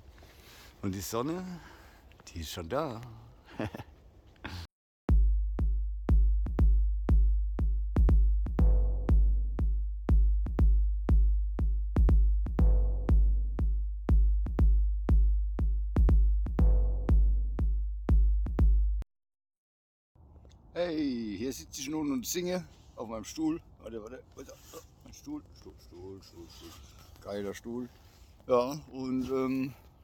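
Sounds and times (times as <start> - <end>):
electronic music with kick drum: 5.1 - 19.0.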